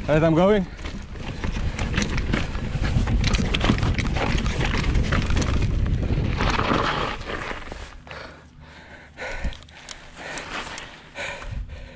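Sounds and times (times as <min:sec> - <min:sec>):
wind buffeting microphone: 0:00.0 - 0:07.0, 0:11.2 - 0:11.9
bike rattling and clicking: 0:00.0 - 0:11.9
tyres crunching over stones: 0:00.2 - 0:08.1.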